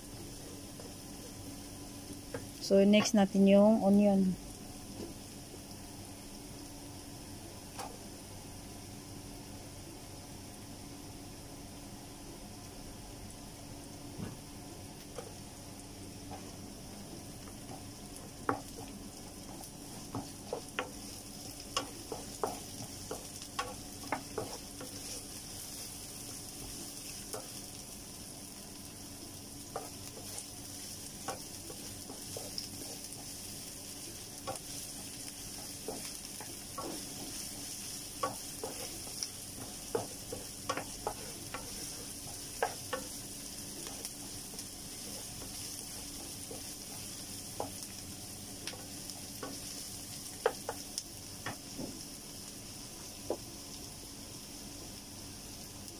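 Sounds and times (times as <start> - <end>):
onion sizzling in oil: 0.0 - 55.9
wooden spatula scraping pan: 35.5 - 43.1.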